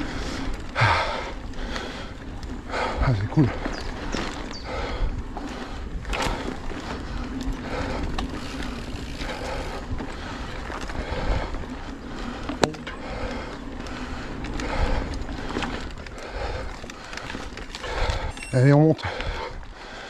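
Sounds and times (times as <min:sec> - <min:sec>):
wind rumble on microphone: 0:00.0 - 0:19.8
bike frame and chain rattling: 0:00.0 - 0:20.0
bike tyre noise on dirt: 0:00.0 - 0:20.0.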